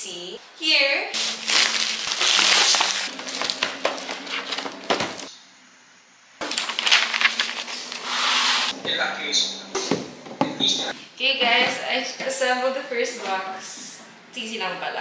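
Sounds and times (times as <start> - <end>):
paper sheets rustling: 1.2 - 5.3, 6.4 - 8.8
plastic wrap crinkling: 1.2 - 5.3, 6.4 - 8.7.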